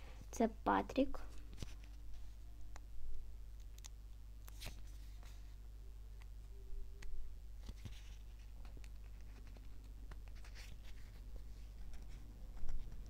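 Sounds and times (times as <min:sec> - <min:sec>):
steady low hum: 0:00.0 - 0:13.0
paper sticker rustling and crinkling: 0:07.6 - 0:13.0.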